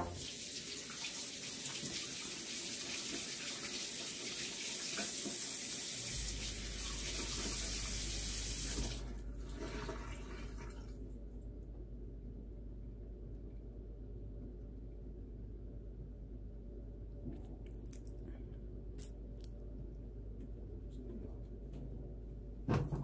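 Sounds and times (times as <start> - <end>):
tap running water into sink: 0.0 - 10.8.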